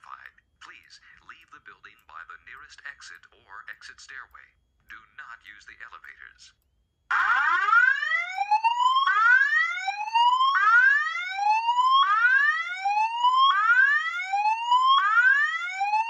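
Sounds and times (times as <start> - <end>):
fire alarm whoop tone: 7.1 - 16.0.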